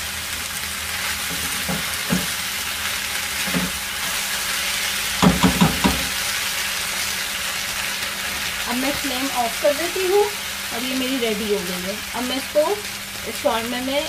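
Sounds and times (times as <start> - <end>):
food sizzling in a frying pan: 0.0 - 14.0
spatula knocking on pan: 1.3 - 2.4, 3.4 - 3.8, 5.2 - 6.2.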